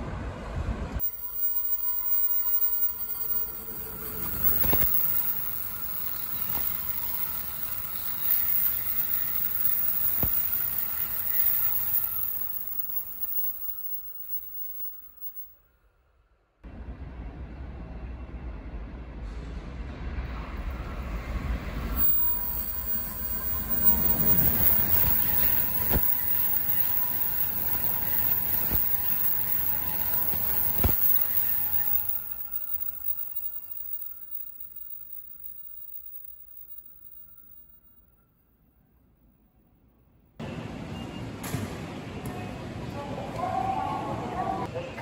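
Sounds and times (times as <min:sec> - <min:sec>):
train rushing past: 0:16.7 - 0:34.0.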